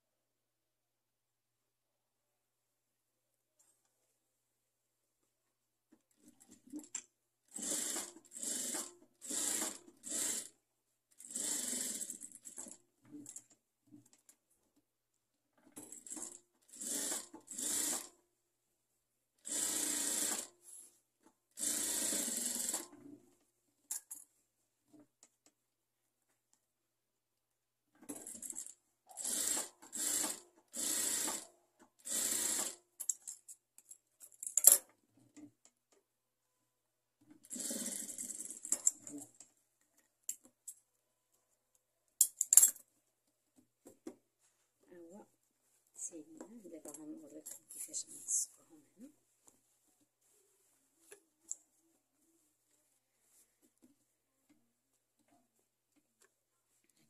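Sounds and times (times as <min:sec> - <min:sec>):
sewing machine stitching: 0:06.2 - 0:13.5, 0:15.7 - 0:18.2, 0:19.4 - 0:20.6, 0:21.5 - 0:23.2, 0:28.0 - 0:32.8, 0:37.3 - 0:39.4.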